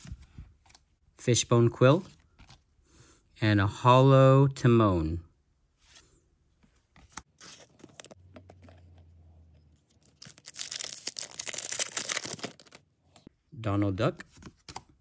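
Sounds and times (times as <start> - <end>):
cards clicking and rustling: 9.8 - 12.8
plastic wrapper crinkling: 9.9 - 12.8.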